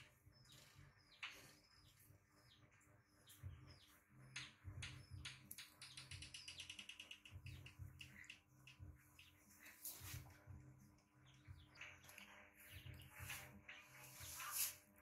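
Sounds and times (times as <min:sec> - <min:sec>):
bird trill: 0:00.0 - 0:10.2
birds chirping: 0:00.0 - 0:15.0.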